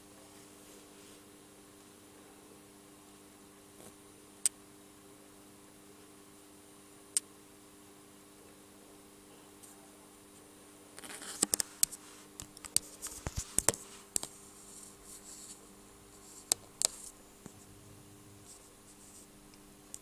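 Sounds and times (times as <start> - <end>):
faint steady low hum: 0.0 - 20.0
phone handling clicks and scratches: 11.0 - 14.4.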